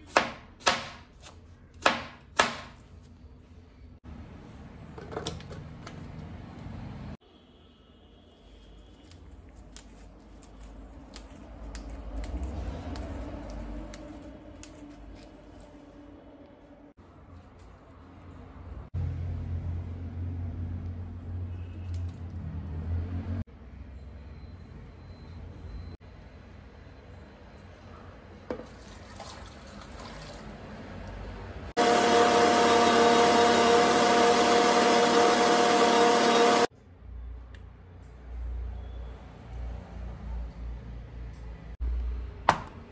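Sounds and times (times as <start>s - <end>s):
mint leaves snapping: 9.0s - 15.3s
water pouring into jar: 28.7s - 30.6s
electric mixer grinder running: 31.8s - 36.7s.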